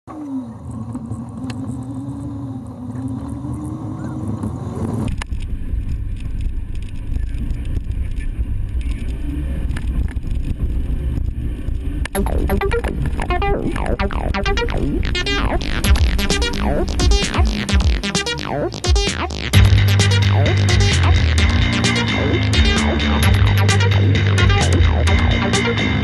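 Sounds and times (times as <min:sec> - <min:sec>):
off-road vehicle engine: 0:00.1 - 0:13.2, 0:18.6 - 0:26.0.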